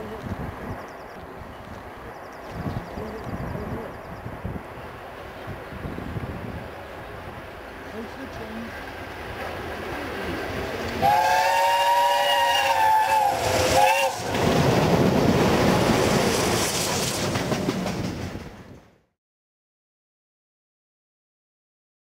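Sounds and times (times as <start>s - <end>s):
train rumbling past: 0.0s - 19.1s
steam locomotive whistle: 11.0s - 14.4s.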